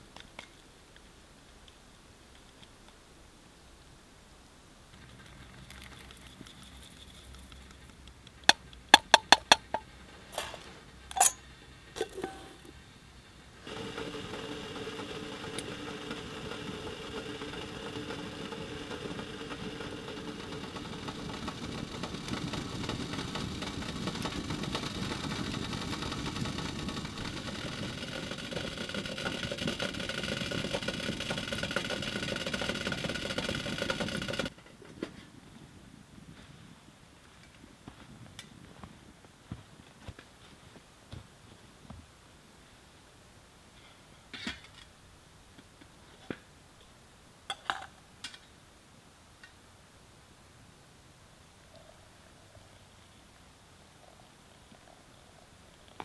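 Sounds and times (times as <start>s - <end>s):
kettle heating hiss and rumble: 0.0s - 56.0s
sharp clicks and clunks: 7.3s - 11.4s, 13.7s - 35.1s.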